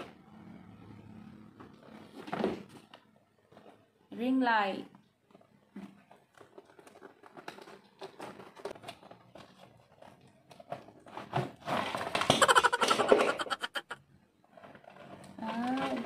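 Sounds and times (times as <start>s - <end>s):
rustling packaging: 5.1s - 16.0s.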